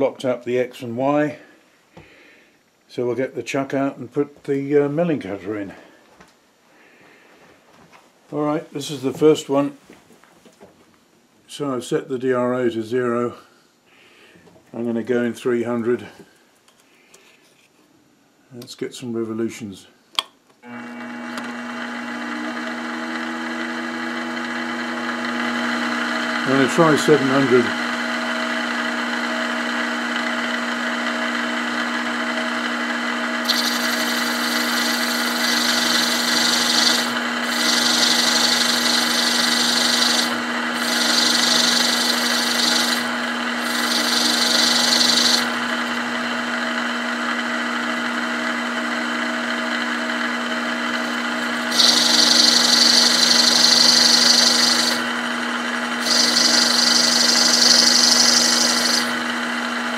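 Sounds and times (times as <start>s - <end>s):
milling machine motor hum: 20.7s - 59.9s
end mill cutting brass hiss: 33.4s - 45.6s, 51.0s - 55.0s, 56.0s - 59.2s.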